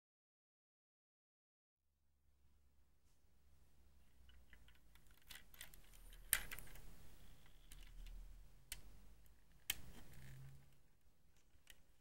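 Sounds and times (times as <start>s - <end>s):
plastic bricks clicking: 4.3s - 8.9s.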